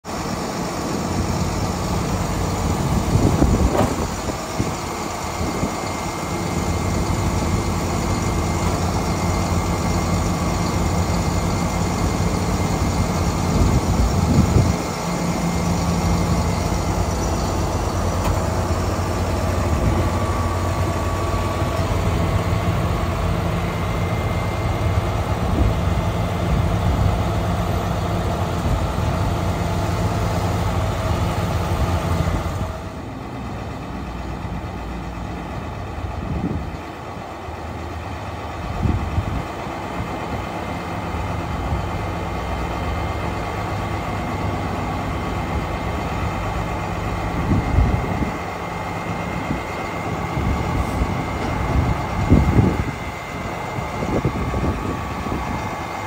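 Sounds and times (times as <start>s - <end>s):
diesel engine idling: 0.0s - 56.0s
hydraulic outriggers moving: 49.4s - 56.0s.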